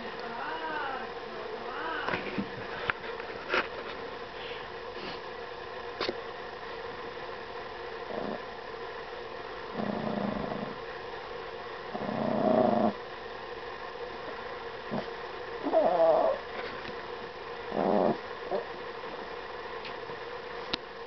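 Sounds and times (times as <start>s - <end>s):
dog growling: 0.2s - 2.2s, 8.0s - 8.5s, 9.7s - 10.8s, 11.9s - 13.0s, 14.9s - 16.4s, 17.7s - 18.7s.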